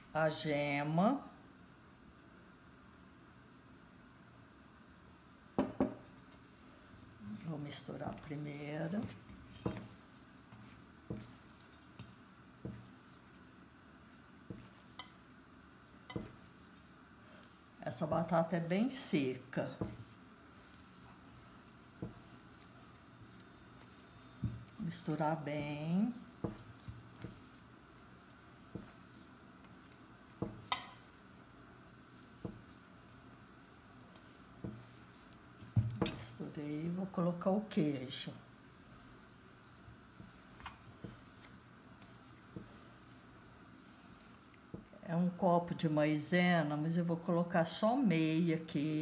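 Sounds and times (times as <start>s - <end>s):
hand patting mash in bowl: 5.6s - 37.8s, 38.9s - 45.4s.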